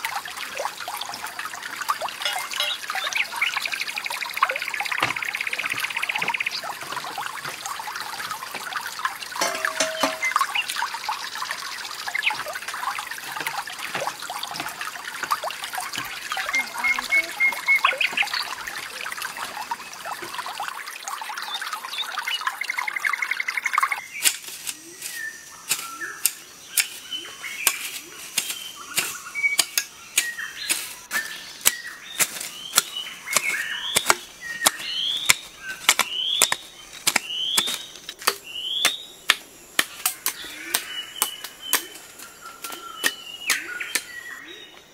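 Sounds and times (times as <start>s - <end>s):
flowing water: 0.0s - 24.2s, 27.1s - 38.4s
hoe chopping stony soil: 27.6s - 42.0s.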